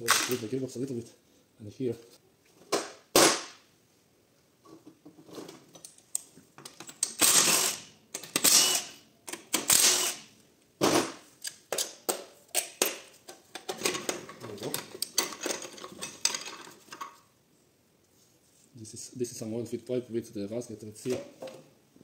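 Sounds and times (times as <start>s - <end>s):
impact wrench bursts: 7.1s - 10.3s.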